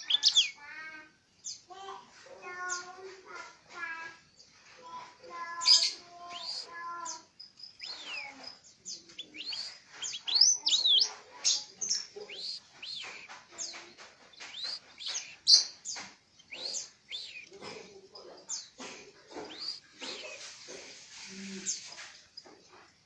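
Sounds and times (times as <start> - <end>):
songbird chirping and whistling: 0.0 - 0.7, 4.4 - 17.8, 18.4 - 22.0.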